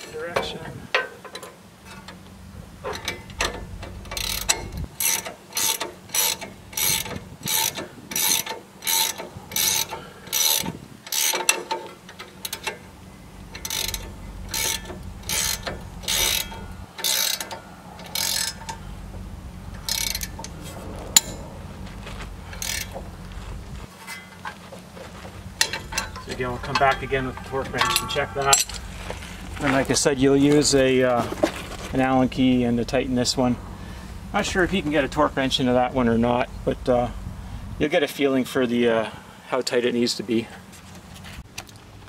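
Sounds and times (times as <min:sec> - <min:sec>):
socket ratchet clicking: 0:13.5 - 0:18.8.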